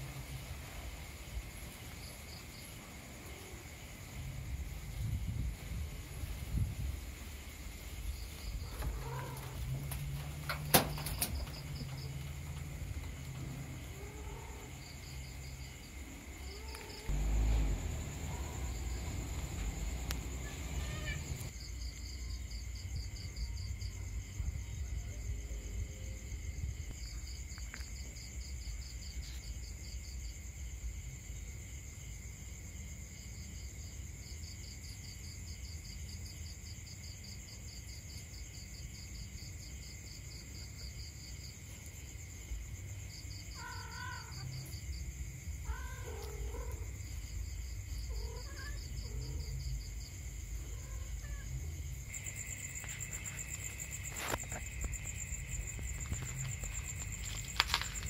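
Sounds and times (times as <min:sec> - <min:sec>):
high insect drone: 0:00.0 - 0:58.0
insects trilling: 0:00.0 - 0:58.0
cat meowing: 0:08.7 - 0:09.6, 0:20.4 - 0:21.5, 0:43.6 - 0:44.6, 0:45.6 - 0:46.9, 0:48.1 - 0:49.5.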